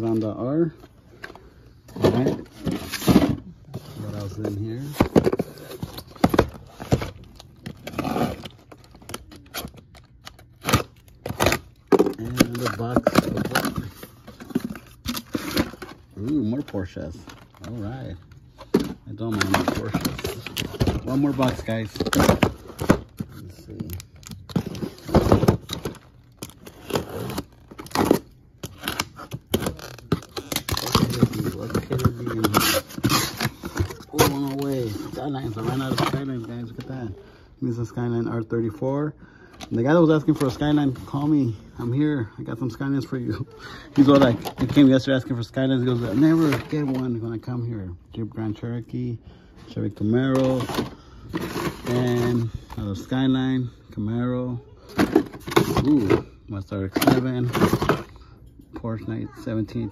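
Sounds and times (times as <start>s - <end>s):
cardboard scraping and rustling: 1.9s - 8.8s
packing tape ripping: 25.6s - 34.9s.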